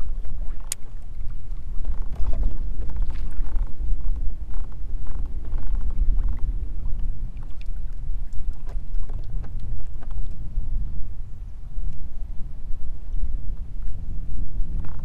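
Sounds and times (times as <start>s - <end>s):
water lapping against hull: 0.0s - 15.0s
wind buffeting microphone: 0.0s - 15.0s
faint clicks: 0.6s - 3.7s.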